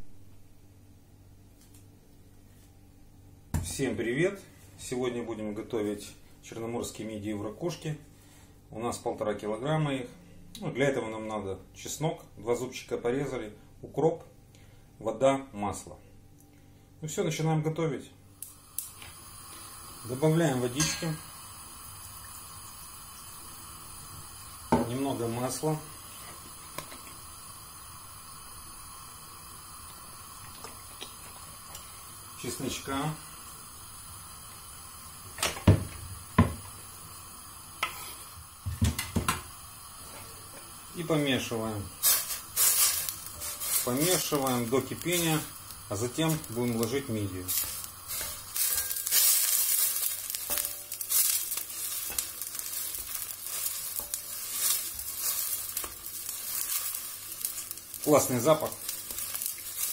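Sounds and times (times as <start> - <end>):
faint steady hiss: 0.0 - 59.9
wooden spoon scraping a pan: 42.0 - 44.5, 47.4 - 57.0.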